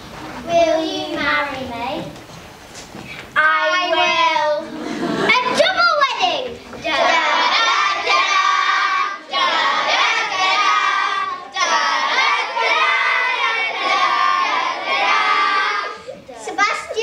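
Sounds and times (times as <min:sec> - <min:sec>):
children singing together: 0:06.7 - 0:16.3.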